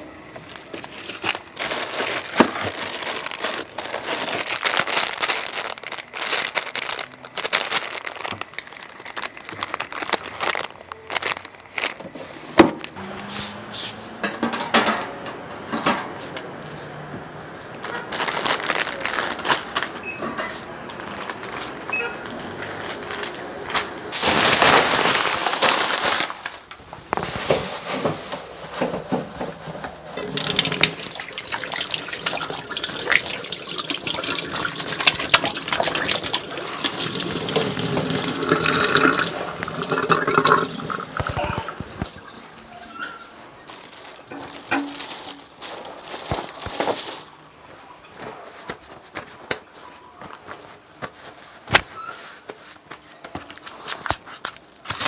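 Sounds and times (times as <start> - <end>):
plastic packaging rustling: 0.3 - 13.7, 17.6 - 55.0
items knocking and clattering: 0.4 - 13.0, 14.2 - 16.4, 27.0 - 47.3.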